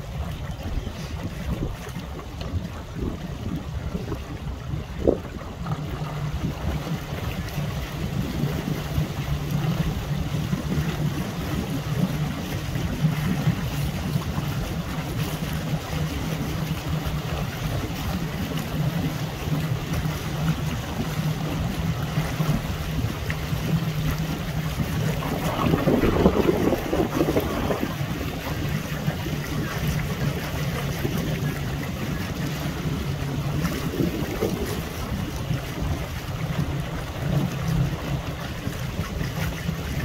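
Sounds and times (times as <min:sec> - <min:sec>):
choppy water: 0:00.0 - 0:40.0
low hum: 0:00.0 - 0:40.0
wind buffeting microphone: 0:00.0 - 0:40.0.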